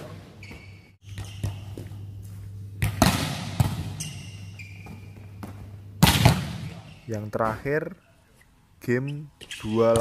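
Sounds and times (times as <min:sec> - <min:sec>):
sneakers squeaking on court: 0:00.0 - 0:07.1
steady low hum: 0:00.0 - 0:09.5
volleyball struck hard: 0:02.8 - 0:03.9, 0:06.0 - 0:06.8.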